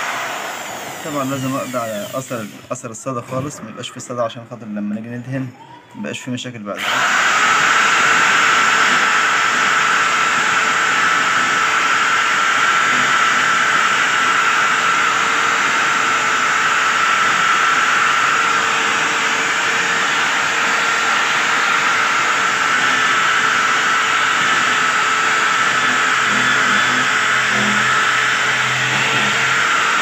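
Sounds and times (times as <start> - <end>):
wire brush drill scratching metal: 0.9 - 2.6, 22.4 - 30.0.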